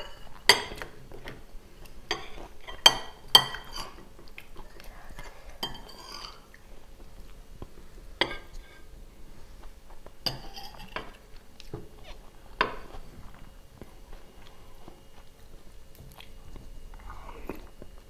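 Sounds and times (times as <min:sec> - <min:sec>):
cutlery clinking on plate: 0:02.1 - 0:04.0, 0:10.3 - 0:11.2
mouth sounds of eating: 0:11.3 - 0:18.0.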